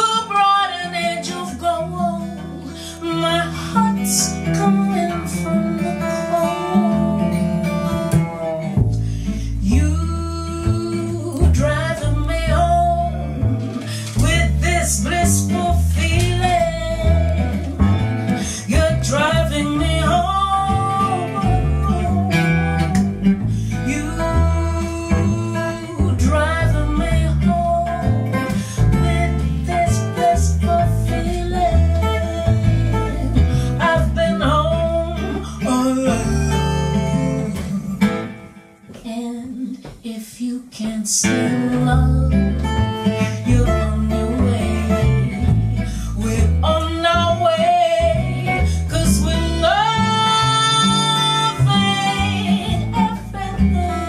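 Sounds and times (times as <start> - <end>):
acoustic guitar: 0.0 - 54.0
woman singing: 0.0 - 54.0
upright bass walking: 6.6 - 54.0.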